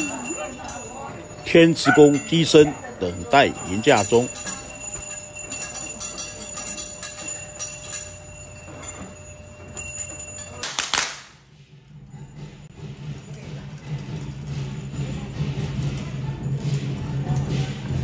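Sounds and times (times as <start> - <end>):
bells jingling: 0.0 - 11.4, 12.0 - 18.0.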